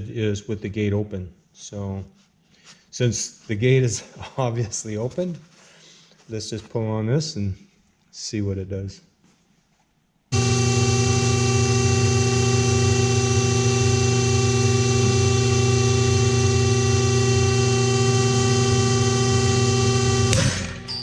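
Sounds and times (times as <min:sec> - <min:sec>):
motor humming: 0:10.3 - 0:21.0.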